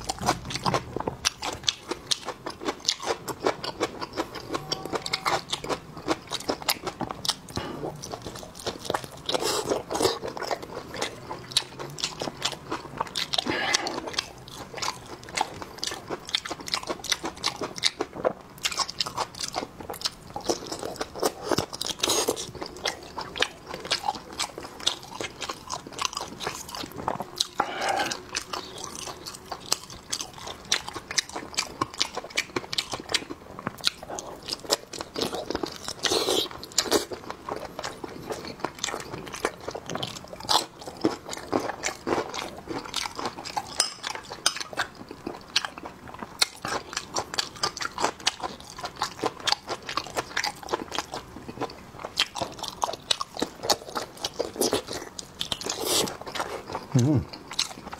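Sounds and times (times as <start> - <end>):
person chewing with wet smacks: 0.0 - 57.9.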